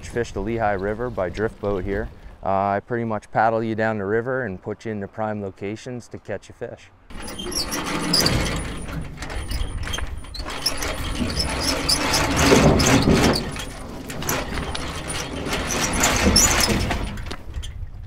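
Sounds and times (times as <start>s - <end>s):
metal boat trailer rattling and scraping: 0.0s - 2.5s, 7.1s - 18.0s.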